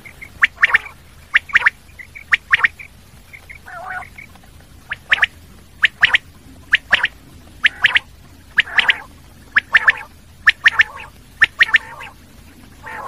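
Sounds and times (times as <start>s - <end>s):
rasping bird call: 0.0s - 4.3s, 4.9s - 12.2s, 12.8s - 13.0s
quail song: 0.0s - 13.0s.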